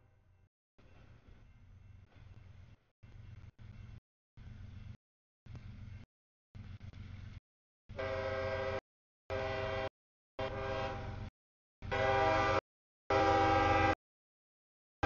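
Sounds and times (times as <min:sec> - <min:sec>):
low rumble of train: 0:00.0 - 0:14.0
locomotive air horn blasts: 0:07.9 - 0:14.0.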